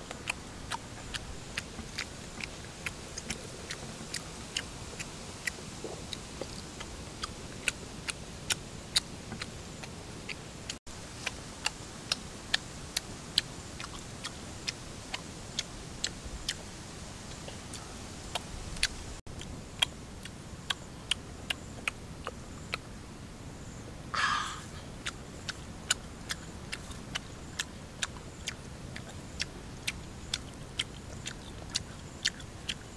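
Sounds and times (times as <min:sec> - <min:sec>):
wet chewing mouth clicks: 0:00.1 - 0:22.8, 0:25.0 - 0:32.9
person slurping: 0:24.2 - 0:24.8.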